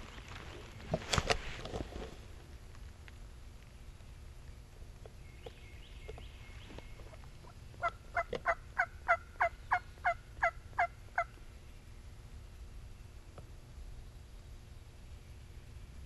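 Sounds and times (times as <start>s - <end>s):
wild turkey yelps: 7.8s - 11.3s.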